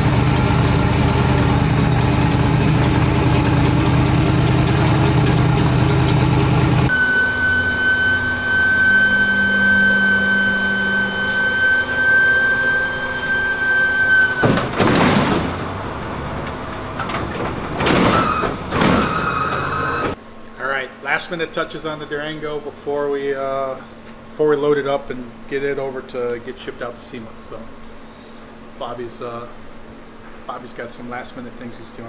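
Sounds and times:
engine idling: 0.0s - 6.9s
steady high whine: 0.0s - 14.6s
trailer doors scraping shut: 6.0s - 20.2s.

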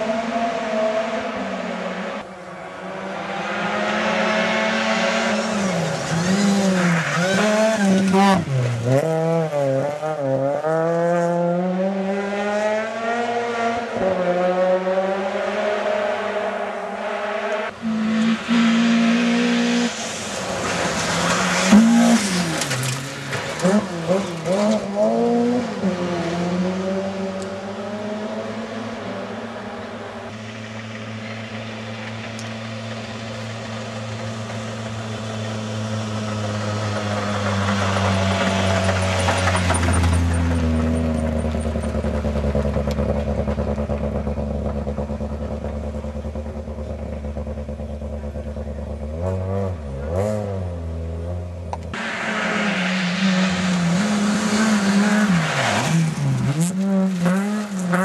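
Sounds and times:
car engine at high revs: 0.0s - 58.0s
rally cars passing: 0.0s - 58.0s
tyres hissing on gravel: 52.0s - 56.3s.

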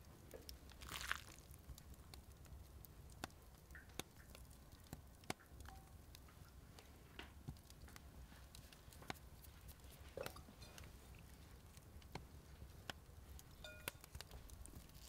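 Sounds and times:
soft rustling crunch: 0.3s - 2.0s, 6.8s - 15.0s.

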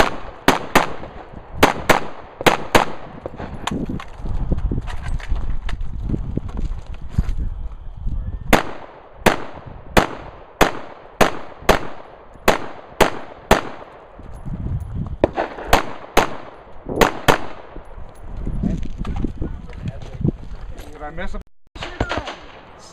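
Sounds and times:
rifle shots with echo: 0.0s - 3.4s, 8.5s - 14.1s, 15.2s - 17.8s, 21.8s - 22.8s.

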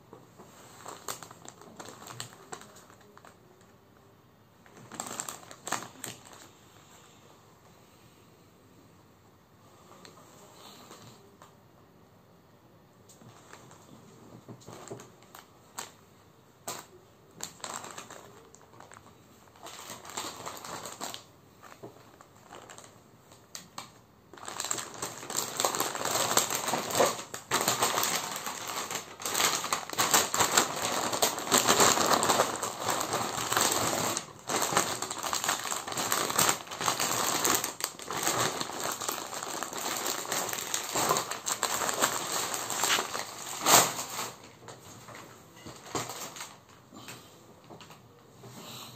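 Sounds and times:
plastic packaging crinkling: 0.4s - 3.8s, 4.6s - 6.6s, 13.2s - 16.0s, 16.6s - 46.8s.

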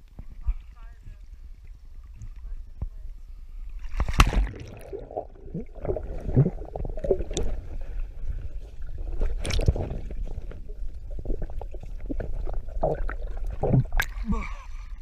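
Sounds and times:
muffled underwater sloshing: 0.0s - 15.0s
splash into water: 3.8s - 5.2s, 9.4s - 10.0s.

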